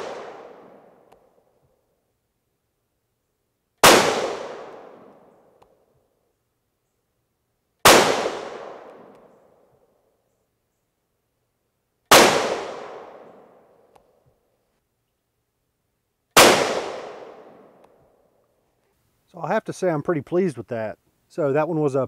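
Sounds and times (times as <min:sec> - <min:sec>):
rifle shots: 0:00.0 - 0:00.9, 0:03.8 - 0:05.3, 0:07.8 - 0:09.3, 0:12.1 - 0:13.6, 0:16.4 - 0:17.8
gunshot echo: 0:00.0 - 0:01.0, 0:03.8 - 0:05.3, 0:07.8 - 0:09.3, 0:12.1 - 0:13.6, 0:16.4 - 0:17.8.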